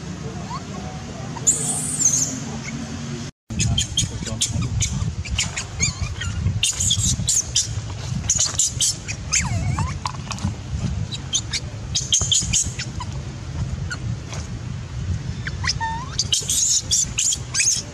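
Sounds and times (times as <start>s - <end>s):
low steady rumble: 0.0s - 17.9s
baby monkey squeaking and whimpering: 0.4s - 2.8s, 3.6s - 10.4s, 11.0s - 13.2s, 15.4s - 17.9s.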